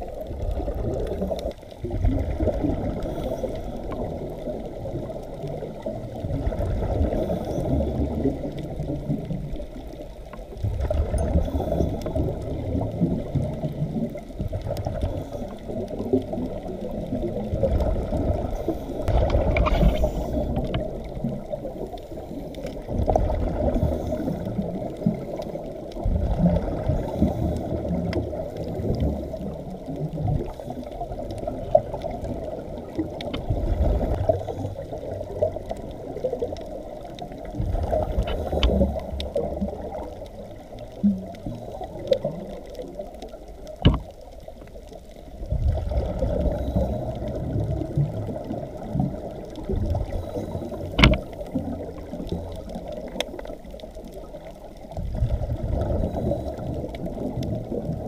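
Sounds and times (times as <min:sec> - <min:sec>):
steady underwater wash: 0:00.0 - 0:58.0
diver regulator bubbly exhalations: 0:45.4 - 0:53.2.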